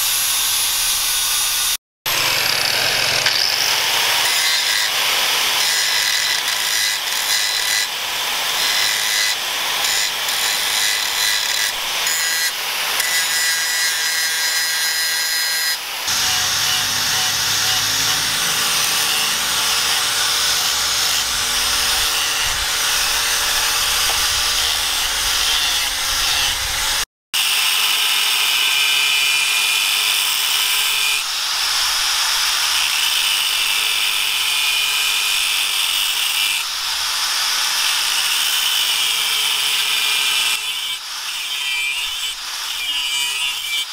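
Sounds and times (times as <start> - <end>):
angle grinder grinding metal: 0.0 - 27.0.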